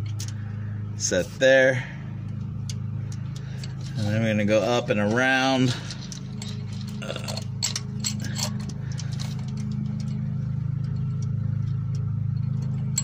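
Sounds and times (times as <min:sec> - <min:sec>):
steady low hum: 0:00.0 - 0:13.0
metal chain clicking and clinking: 0:05.6 - 0:13.0.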